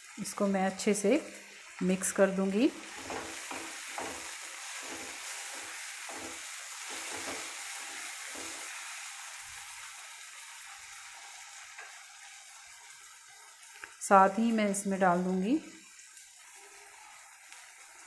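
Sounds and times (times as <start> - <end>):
onions sizzling in hot oil: 0.0 - 18.0
wooden spatula stirring: 2.8 - 8.8.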